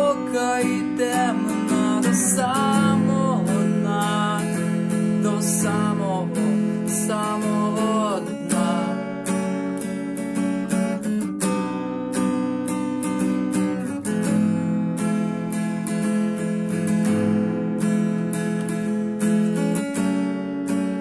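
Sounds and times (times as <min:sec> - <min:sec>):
acoustic guitar strumming: 0:00.0 - 0:21.0
man singing gliding note: 0:05.2 - 0:08.9.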